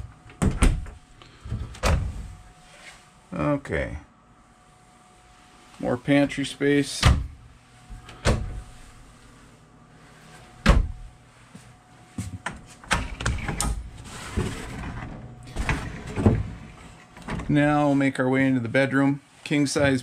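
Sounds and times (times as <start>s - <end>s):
cabinet door thump: 10.6s - 11.0s.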